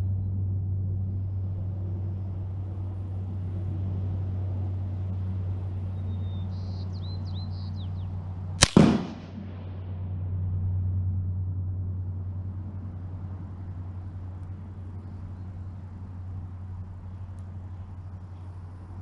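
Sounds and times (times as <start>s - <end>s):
steady low hum: 0.0s - 19.0s
rifle shot crack and echo: 8.6s - 10.0s.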